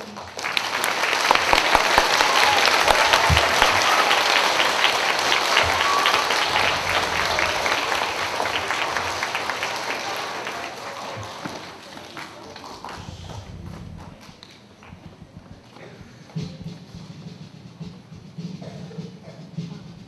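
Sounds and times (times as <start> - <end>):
audience applauding: 0.0 - 15.7.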